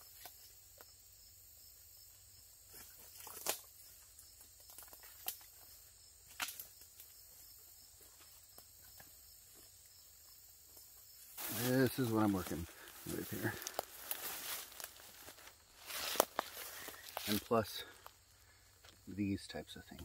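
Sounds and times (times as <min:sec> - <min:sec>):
footsteps in undergrowth: 0:02.7 - 0:09.9, 0:10.8 - 0:19.1
twig snaps: 0:03.2 - 0:03.7, 0:06.3 - 0:06.8
brush rustling: 0:11.2 - 0:18.6.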